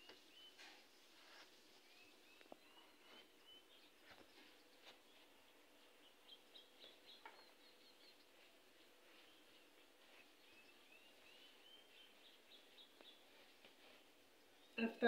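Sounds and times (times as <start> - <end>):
faint bird chirps: 0.0 - 15.0
faint scratching on fabric: 0.6 - 3.3, 8.3 - 14.7.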